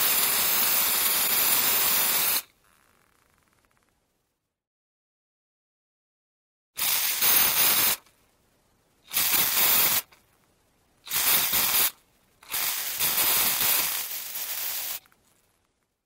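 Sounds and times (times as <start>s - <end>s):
spray can hissing: 0.0s - 2.5s, 6.8s - 8.1s, 9.1s - 10.2s, 11.1s - 15.0s.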